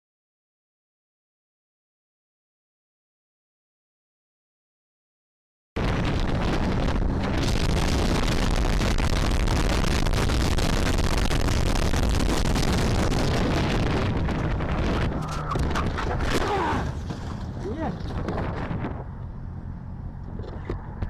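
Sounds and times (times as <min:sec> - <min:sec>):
wind roar on microphone: 0:05.8 - 0:21.0.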